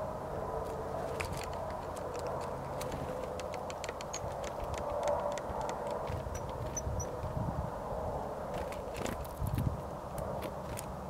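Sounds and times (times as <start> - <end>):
low outdoor hum: 0.0 - 11.0
bird pecking at seed: 0.7 - 7.2.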